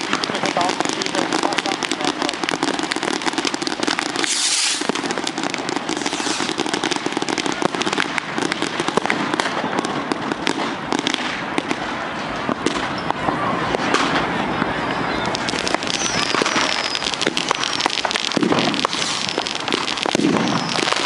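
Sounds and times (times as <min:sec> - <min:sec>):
fireworks crackling: 0:00.0 - 0:21.0
brief hiss: 0:04.3 - 0:04.8.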